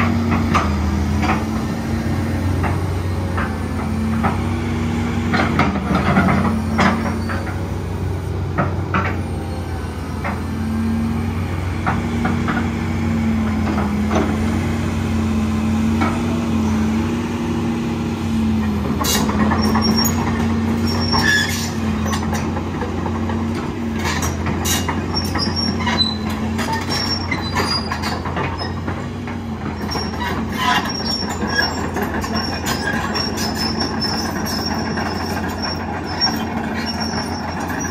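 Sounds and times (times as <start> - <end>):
excavator diesel engine: 0.0 - 37.9
steel tracks clanking: 18.4 - 37.9.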